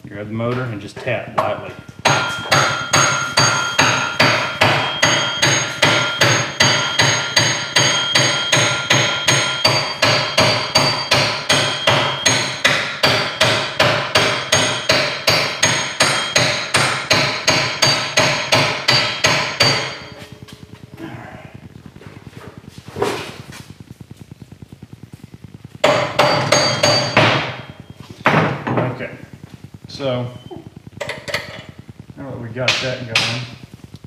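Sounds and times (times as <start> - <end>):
hammer tapping on metal: 1.4 - 20.2, 25.8 - 27.7.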